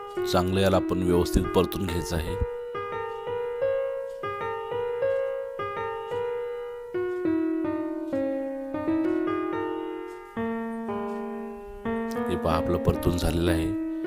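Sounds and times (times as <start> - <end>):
slow piano melody: 0.0 - 14.0.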